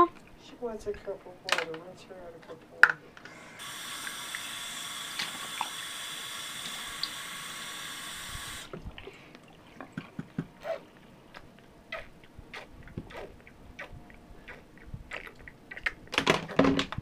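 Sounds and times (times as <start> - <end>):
tap water running into cup: 3.6 - 8.8.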